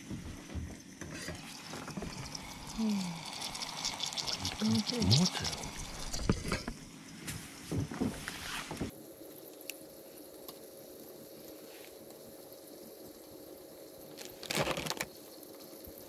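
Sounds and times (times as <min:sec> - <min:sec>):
gas burner hissing: 0:00.0 - 0:14.0.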